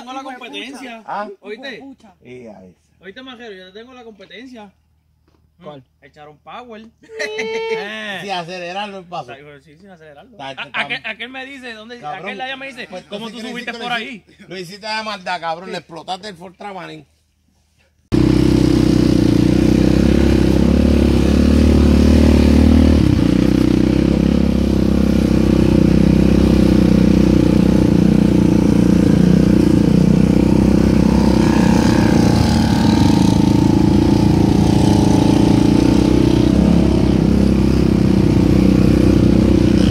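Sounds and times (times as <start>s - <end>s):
atv engine running: 18.1s - 39.9s.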